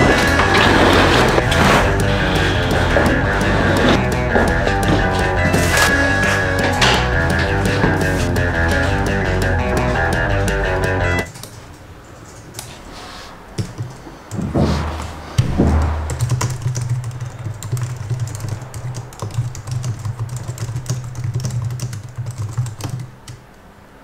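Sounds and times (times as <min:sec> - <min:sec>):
deep swelling sounds: 0:00.0 - 0:11.3, 0:14.5 - 0:17.4
low hum: 0:00.0 - 0:11.3, 0:14.4 - 0:18.7.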